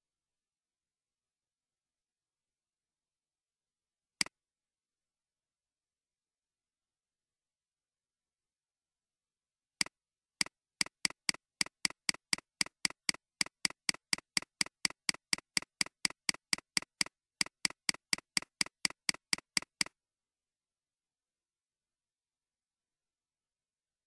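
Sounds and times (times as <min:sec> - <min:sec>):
computer mouse clicks: 0:09.8 - 0:19.9.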